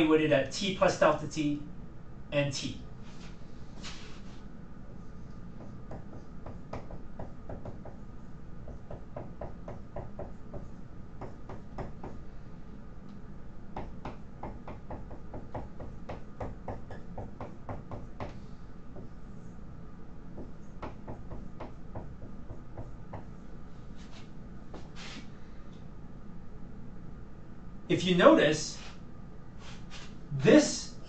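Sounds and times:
faint room hum: 0.0 - 31.0
marker writing on whiteboard: 5.6 - 8.1, 20.4 - 23.4.

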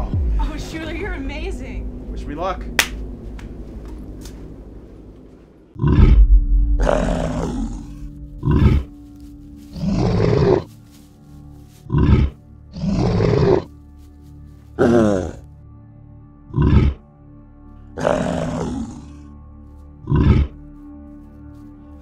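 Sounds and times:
creature growling and roaring: 5.8 - 8.9, 14.8 - 15.4, 16.5 - 17.0, 18.0 - 19.3, 20.0 - 20.6.

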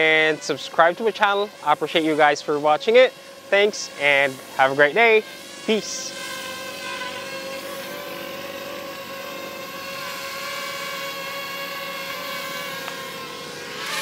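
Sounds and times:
drone propellers buzzing: 0.0 - 14.0.

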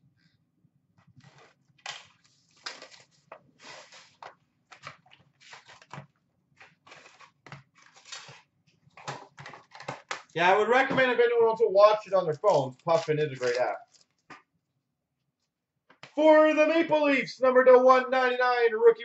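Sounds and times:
cardboard and foil crinkling: 1.2 - 10.1, 12.2 - 14.3.

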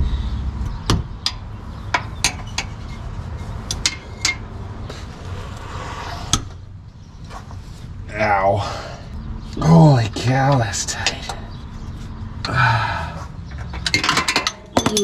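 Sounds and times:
socket wrench clinking on metal: 13.6 - 15.0.

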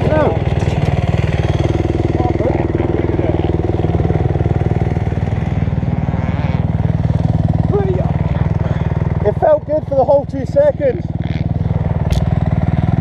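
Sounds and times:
dirt bike engine idling: 0.0 - 13.0.

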